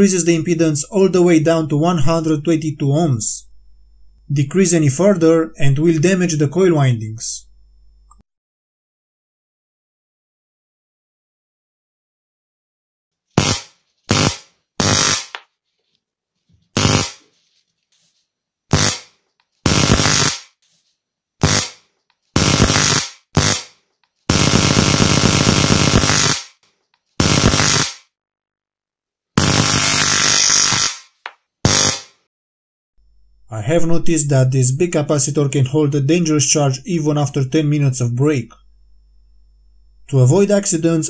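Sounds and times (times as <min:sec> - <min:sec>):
electric arc buzzing crackle: 0:13.4 - 0:15.4, 0:16.7 - 0:17.3, 0:18.7 - 0:20.6, 0:21.4 - 0:26.6, 0:27.2 - 0:28.0, 0:29.4 - 0:32.2.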